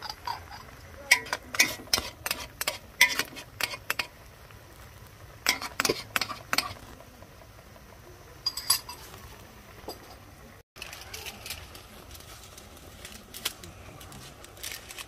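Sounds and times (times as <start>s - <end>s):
utensil clinking against pot: 0.0s - 4.1s, 5.4s - 6.8s, 8.4s - 9.0s.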